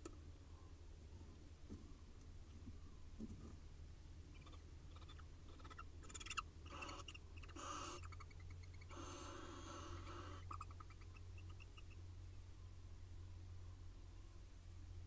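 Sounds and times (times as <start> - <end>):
faint low hum: 0.0 - 15.0
owls rasping calls: 4.3 - 12.0.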